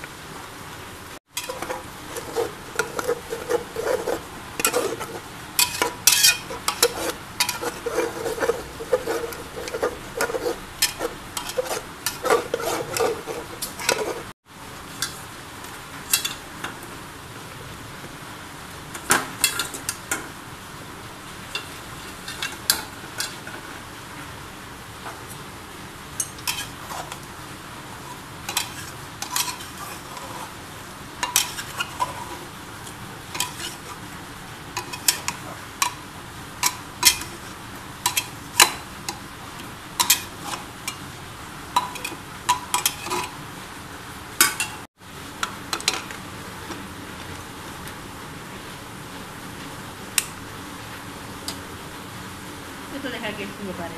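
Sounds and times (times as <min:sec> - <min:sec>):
spoon clinking and scraping pot: 0:01.4 - 0:14.3, 0:16.1 - 0:16.4, 0:21.5 - 0:23.4, 0:26.2 - 0:27.3, 0:28.0 - 0:30.5, 0:31.2 - 0:32.4, 0:33.3 - 0:34.0, 0:34.7 - 0:36.0, 0:36.6 - 0:39.2, 0:40.0 - 0:41.0, 0:41.8 - 0:43.4, 0:44.4 - 0:44.8.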